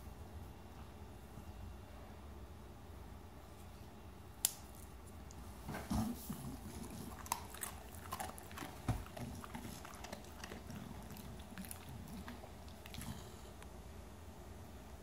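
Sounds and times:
dog chewing and licking: 0:05.3 - 0:13.6.

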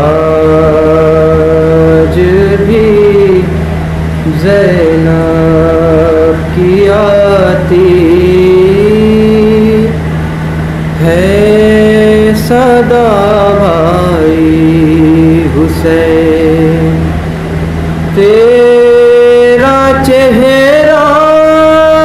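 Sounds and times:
steady low hum: 0:00.0 - 0:22.0
man singing an elegy: 0:18.2 - 0:22.0.

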